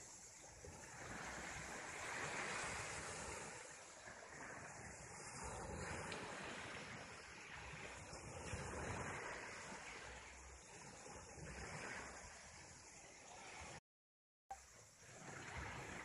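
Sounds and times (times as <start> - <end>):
sea surf rushing: 0.0 - 13.8
wind rumbling on microphone: 0.0 - 13.8.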